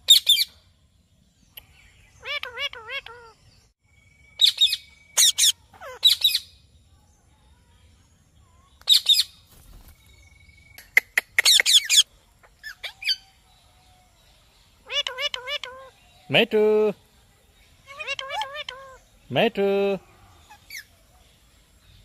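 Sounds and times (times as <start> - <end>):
parakeets screeching: 2.2 - 3.4, 4.4 - 6.5, 11.4 - 13.4, 14.8 - 16.0, 17.8 - 19.1.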